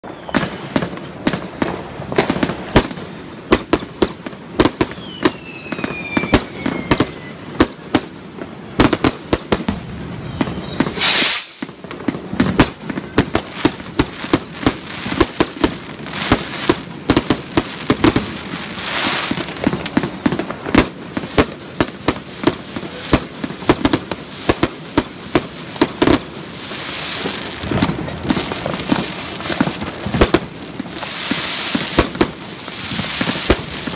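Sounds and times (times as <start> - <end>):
falling firework whistle: 0.0 - 1.1, 4.7 - 7.8, 8.8 - 13.6
fireworks banging: 0.0 - 33.9
loud hiss: 10.7 - 11.9.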